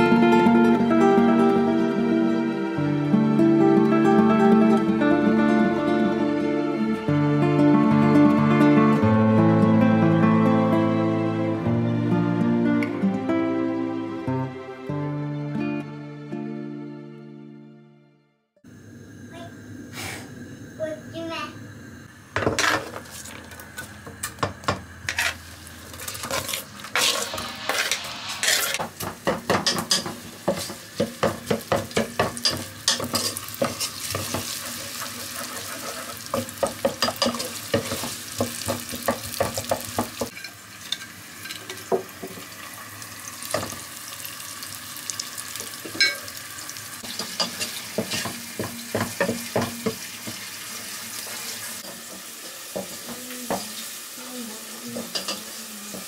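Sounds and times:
food sizzling in a pan: 18.7 - 56.0
metal utensil scraping a pan: 25.0 - 30.8, 32.4 - 38.2.

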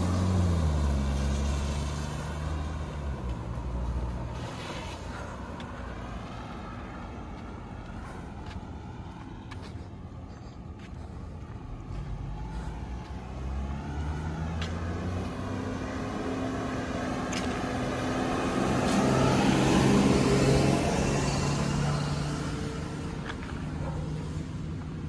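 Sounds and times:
tyres hissing on wet road: 0.0 - 6.8, 12.7 - 23.1
van engine passing: 0.0 - 25.0.

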